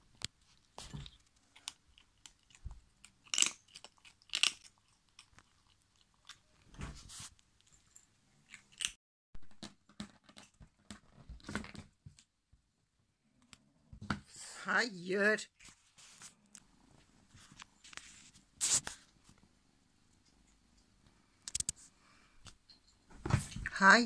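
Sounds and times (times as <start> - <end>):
kitten crunching dry kibble: 0.2 - 8.9.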